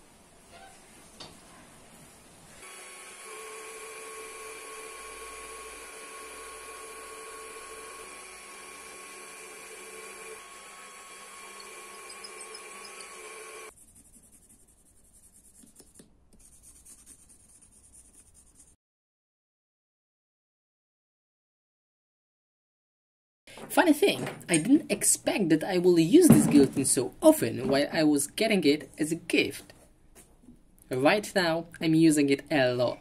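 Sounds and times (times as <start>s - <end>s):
power tool motor whining: 2.6s - 13.7s.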